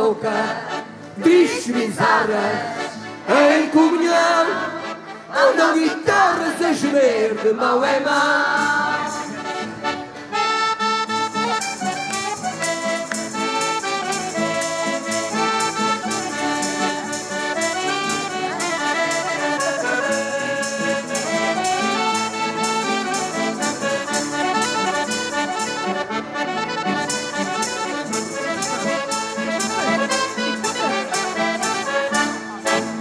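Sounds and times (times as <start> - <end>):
accordions playing melody: 0.0 - 33.0
tambourine beat: 8.2 - 10.1, 10.9 - 26.2, 26.8 - 33.0
guitar strumming: 8.4 - 33.0.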